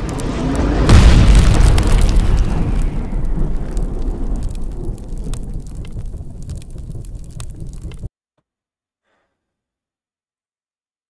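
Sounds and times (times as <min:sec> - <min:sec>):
deep rumbling boom with crackle: 0:00.0 - 0:08.1.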